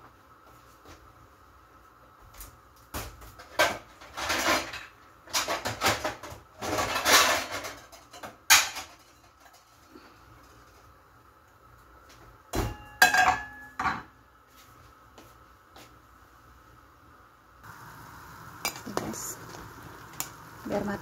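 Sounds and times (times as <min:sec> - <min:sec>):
metal pots and pans clattering: 0:03.4 - 0:09.9, 0:12.6 - 0:14.1.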